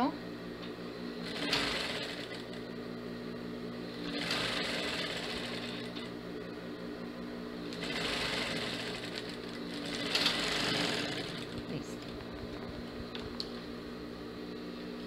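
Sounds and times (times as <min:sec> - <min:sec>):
sewing machine stitching: 0:01.2 - 0:02.6, 0:03.9 - 0:06.1, 0:07.7 - 0:12.2.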